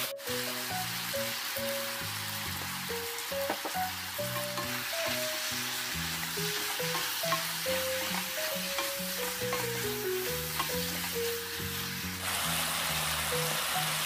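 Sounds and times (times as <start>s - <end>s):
food sizzling in a frying pan: 0.0s - 14.0s
utensils knocking on pan: 3.4s - 5.5s, 6.4s - 11.1s.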